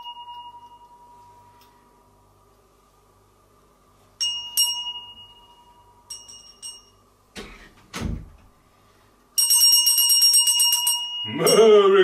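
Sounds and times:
handbell ringing: 0.0s - 1.1s, 4.2s - 7.0s, 9.4s - 11.9s.

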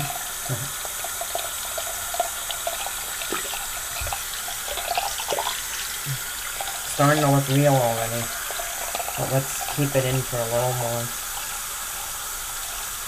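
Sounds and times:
faucet running: 0.0s - 13.0s.

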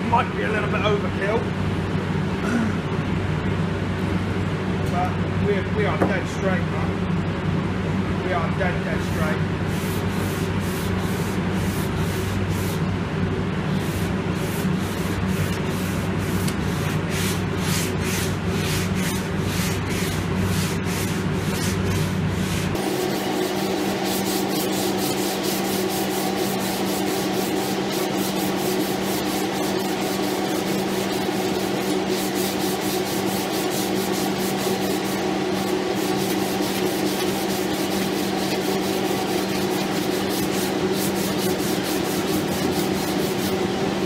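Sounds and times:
steady low hum: 0.0s - 44.0s
sandpaper rasping on panel: 9.0s - 12.8s, 13.8s - 43.6s.

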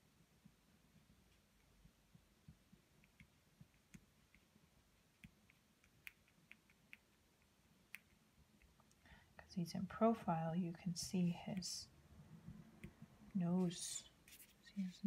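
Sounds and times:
crayon clicking on paper: 5.1s - 8.8s.

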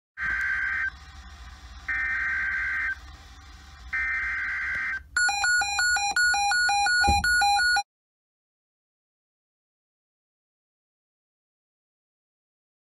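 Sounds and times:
alarm clock beeping: 1.9s - 3.0s, 3.9s - 7.8s.

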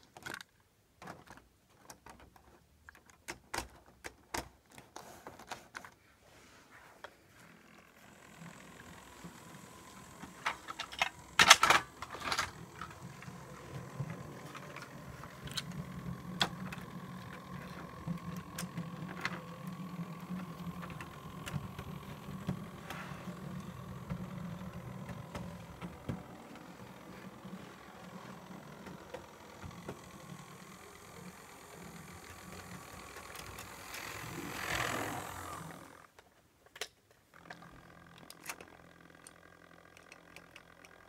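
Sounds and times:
model train motor humming: 7.4s - 36.2s, 37.3s - 41.0s
wheels clicking over rail joints: 7.7s - 36.2s.

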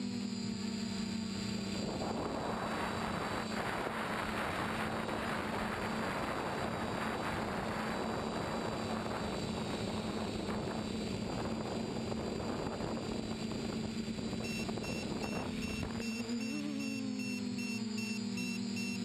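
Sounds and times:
drone motors humming: 0.0s - 19.0s
wind noise on microphone: 1.7s - 16.0s.

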